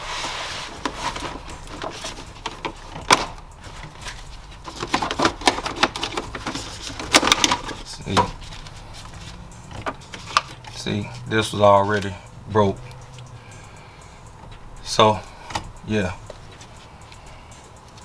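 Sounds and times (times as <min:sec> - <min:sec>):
plastic dashboard pieces snapping: 0:00.8 - 0:08.4.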